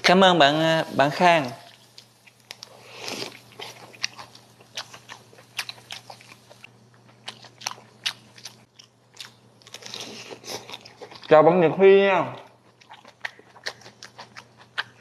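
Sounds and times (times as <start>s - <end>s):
crisp chewing crunches: 12.6s - 15.0s.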